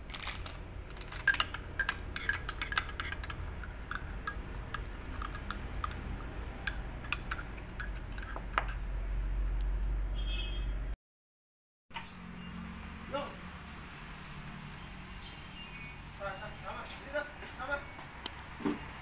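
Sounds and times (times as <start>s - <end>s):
metal spoon clinking in mug: 1.2s - 6.0s, 6.6s - 8.8s.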